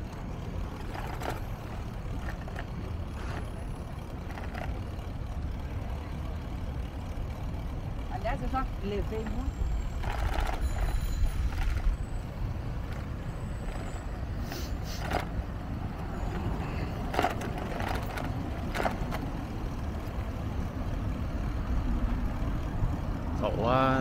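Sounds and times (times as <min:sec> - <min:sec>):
wind and bicycle rolling noise: 0:00.0 - 0:24.0.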